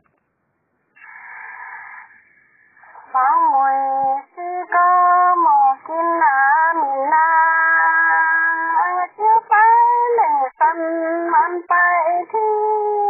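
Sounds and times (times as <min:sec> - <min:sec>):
woman singing unaccompanied: 0:03.0 - 0:13.0.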